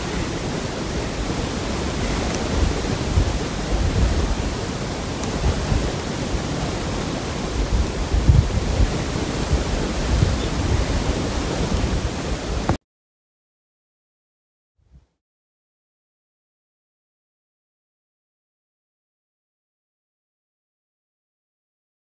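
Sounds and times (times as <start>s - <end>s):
wind blowing across microphone: 0.0s - 12.8s.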